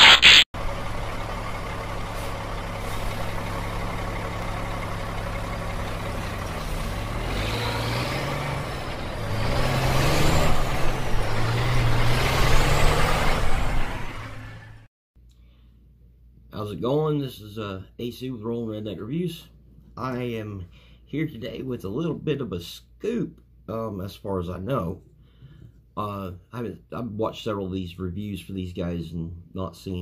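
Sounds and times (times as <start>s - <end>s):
heavy engine revving: 0.0s - 14.9s.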